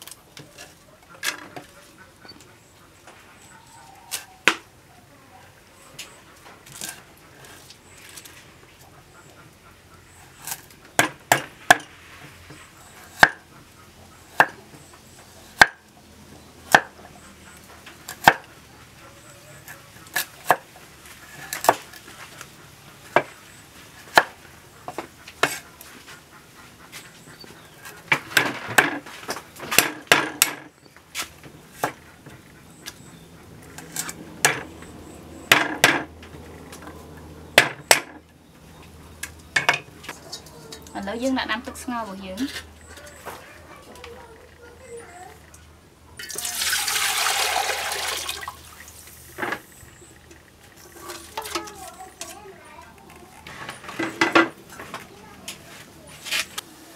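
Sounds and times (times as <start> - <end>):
cleaver chopping on wooden board: 13.2 - 13.4, 16.7 - 17.0.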